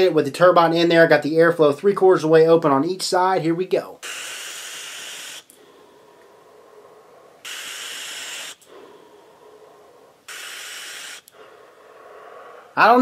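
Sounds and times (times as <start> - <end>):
soft breath hiss: 0.0 - 13.0
airy hissing of vapour hit: 4.0 - 5.5, 7.4 - 9.0, 10.2 - 11.5.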